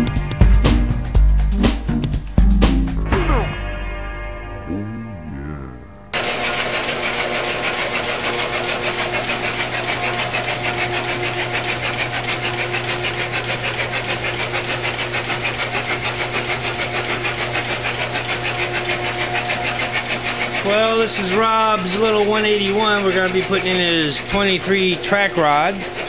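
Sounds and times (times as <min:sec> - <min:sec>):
engine turned over by electric drive: 0:06.2 - 0:23.6.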